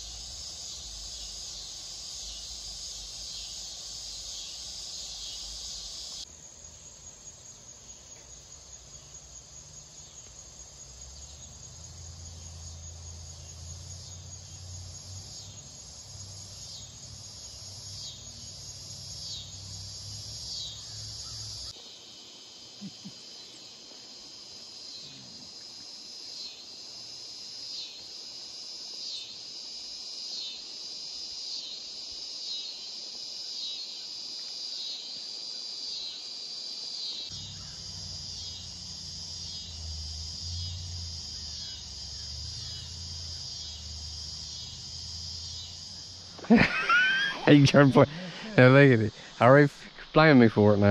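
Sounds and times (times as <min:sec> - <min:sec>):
insects chorus: 0:00.0 - 0:50.9
insect call with falling note: 0:11.0 - 0:21.8, 0:37.0 - 0:50.9.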